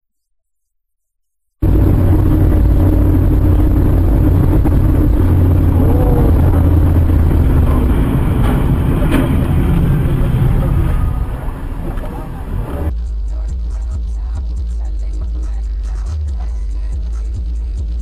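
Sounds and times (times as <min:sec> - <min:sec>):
car engine and road rumble: 0:01.6 - 0:18.0.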